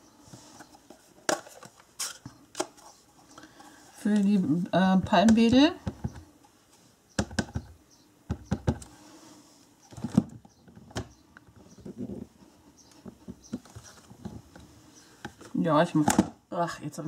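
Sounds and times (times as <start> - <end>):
hard plastic taps and knocks: 5.3 - 6.2, 7.2 - 8.9.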